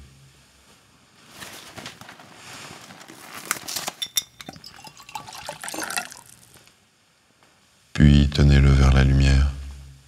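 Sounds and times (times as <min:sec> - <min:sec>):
clothing rustling: 0:01.1 - 0:04.0.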